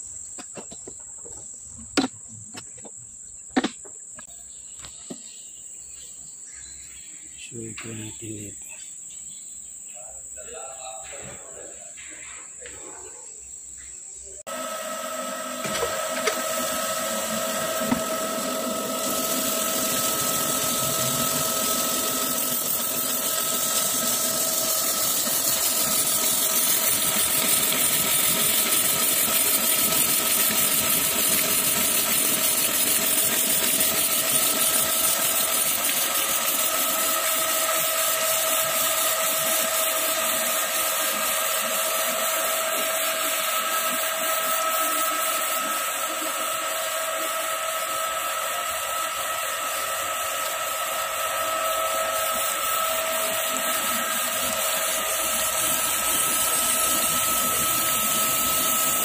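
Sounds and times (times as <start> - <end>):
grinding wheel hiss and whine: 0.0 - 59.0.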